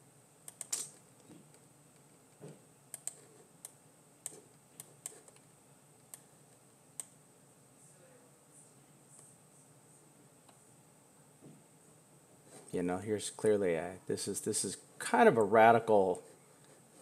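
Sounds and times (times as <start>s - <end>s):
computer mouse clicks: 0.4s - 6.2s, 7.0s - 7.2s.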